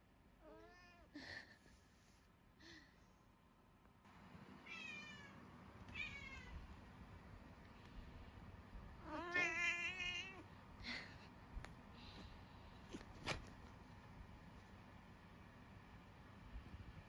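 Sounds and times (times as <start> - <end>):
cat meowing: 4.6 - 6.6, 9.0 - 10.4.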